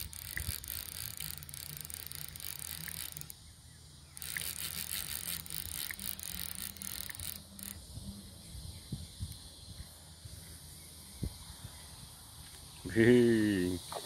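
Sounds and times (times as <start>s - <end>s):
fishing reel ratchet clattering: 0.0s - 7.9s.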